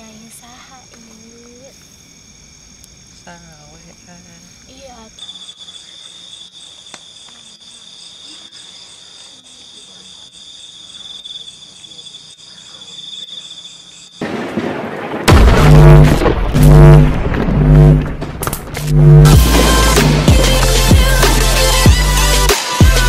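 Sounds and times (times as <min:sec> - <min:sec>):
night insects trilling: 0:00.0 - 0:15.2
heavy loud boom: 0:14.2 - 0:20.4
loud rush of noise: 0:15.3 - 0:20.4.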